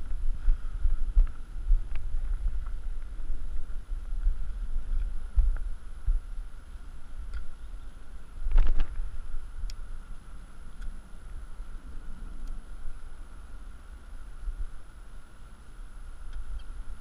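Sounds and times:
wind buffeting microphone: 0.0 - 13.2.

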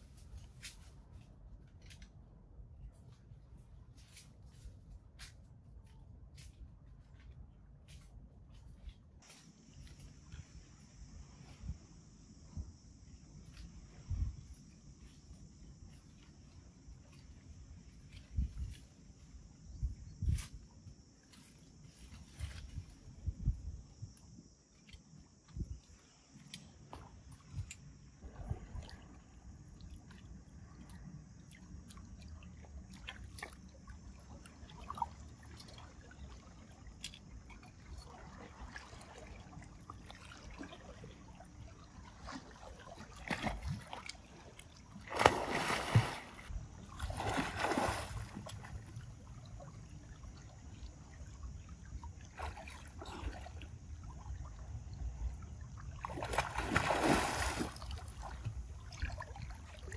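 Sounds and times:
water splashing and sloshing: 13.4 - 24.1, 24.7 - 59.9.

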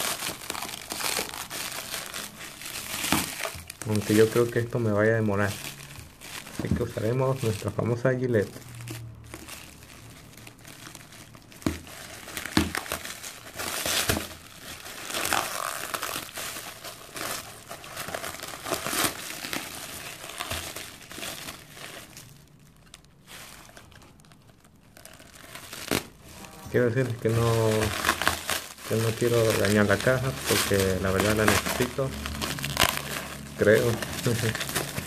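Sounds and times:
plastic wrap crinkling: 0.0 - 35.0.

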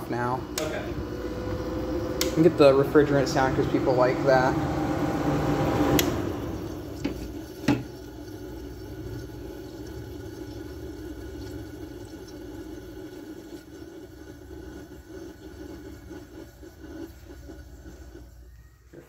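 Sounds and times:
air conditioner running: 0.0 - 19.0
refrigerant flowing: 0.0 - 19.0
air conditioner clicks: 0.5 - 0.8, 1.5 - 2.7, 5.9 - 6.2.

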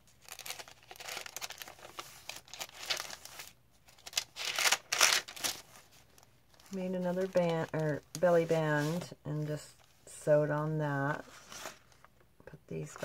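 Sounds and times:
paper rustling and crinkling: 0.0 - 9.2, 11.2 - 12.2.

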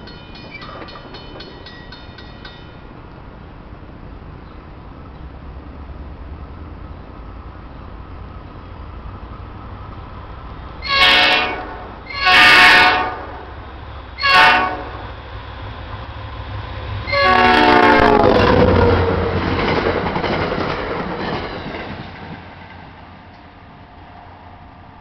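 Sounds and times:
passing train wheel clatter: 0.0 - 3.4, 7.8 - 25.0
train air horn blasts: 10.8 - 13.5, 14.2 - 15.0, 17.0 - 19.2.

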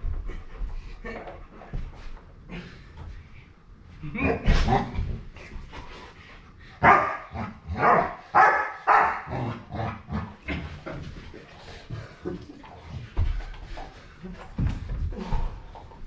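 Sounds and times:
large dog barking: 6.8 - 9.4.

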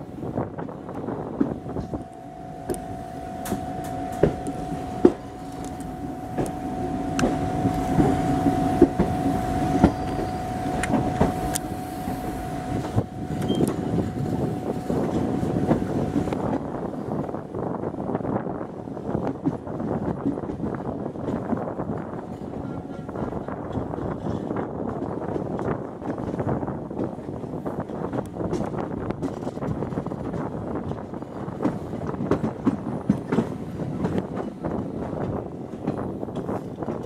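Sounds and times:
steady high whine: 1.0 - 16.9
train wheels clicking over rail joints: 23.2 - 37.0.

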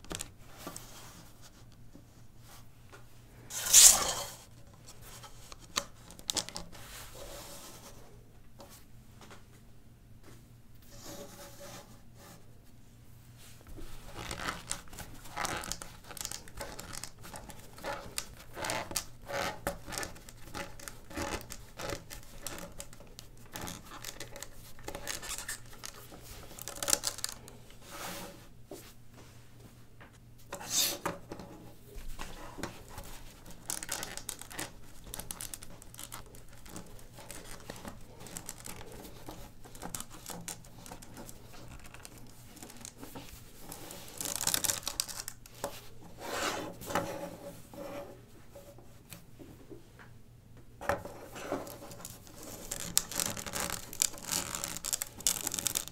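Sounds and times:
plastic bricks clicking and rattling: 23.6 - 27.4, 51.6 - 55.9.

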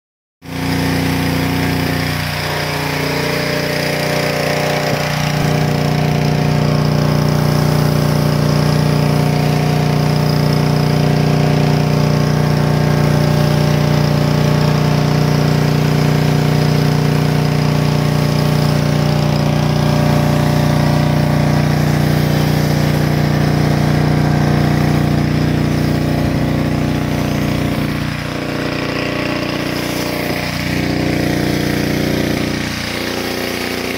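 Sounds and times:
pressure washer humming: 0.4 - 33.9
foam cannon spraying: 0.5 - 33.9.

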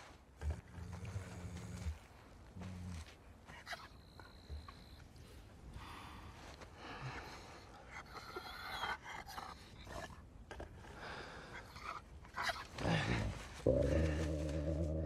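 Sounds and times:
wolf panting: 0.0 - 14.3.

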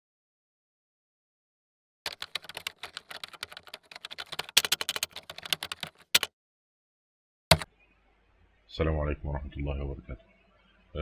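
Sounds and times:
fast keyboard typing: 2.1 - 6.3.

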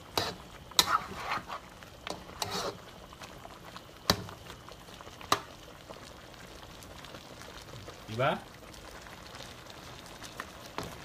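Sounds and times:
metal spatula scraping a wok: 0.1 - 2.8.

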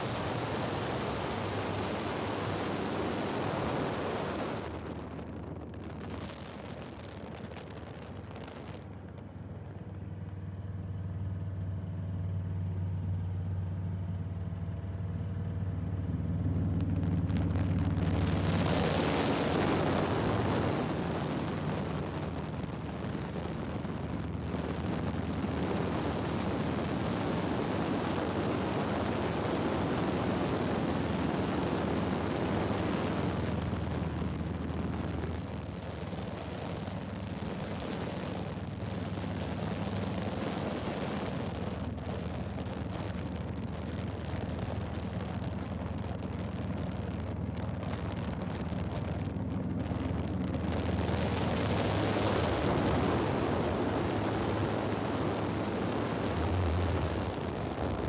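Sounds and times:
aircraft engine and propeller drone: 0.0 - 4.8, 24.5 - 33.8, 49.8 - 58.0
rush of wind: 0.0 - 10.7, 15.3 - 58.0.

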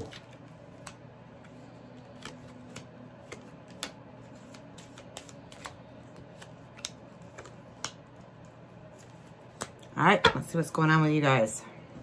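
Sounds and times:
cards clicking and snapping: 0.0 - 8.2, 9.0 - 9.9
low room hum: 0.0 - 12.0.

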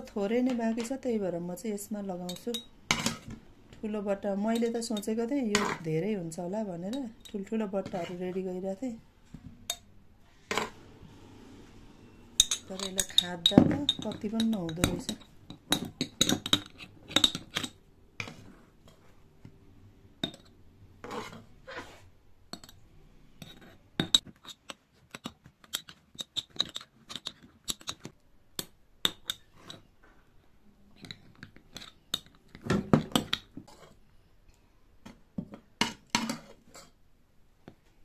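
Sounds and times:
metal spoon clinking on glass: 12.4 - 17.4.

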